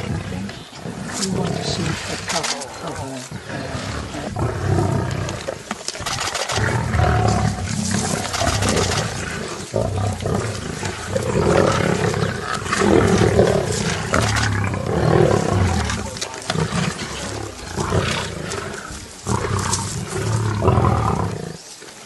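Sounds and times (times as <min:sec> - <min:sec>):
lions growling: 0:00.0 - 0:21.7.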